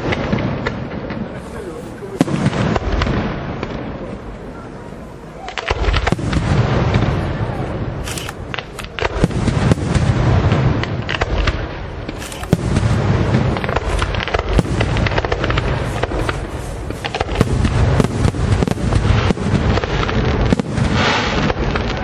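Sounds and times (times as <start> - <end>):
fireworks booms and cracks: 0.0 - 22.0.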